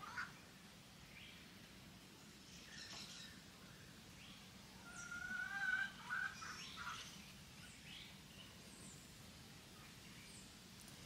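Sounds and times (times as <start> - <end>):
faint bird calls: 2.5 - 9.0.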